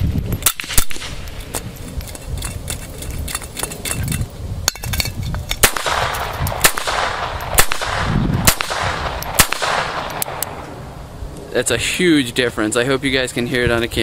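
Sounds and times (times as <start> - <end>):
pistol shots: 0.4 - 1.3, 5.6 - 10.6.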